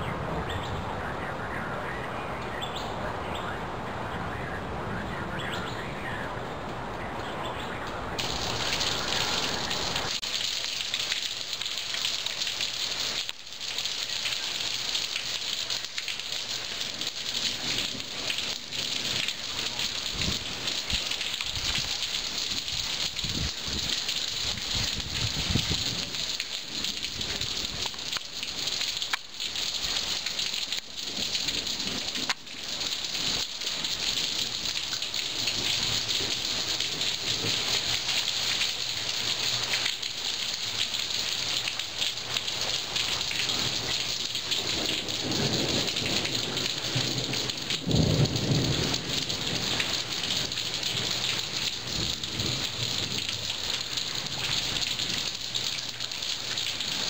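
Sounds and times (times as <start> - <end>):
heavy rain on concrete: 0.0 - 57.0
thunder rolling: 44.5 - 51.1.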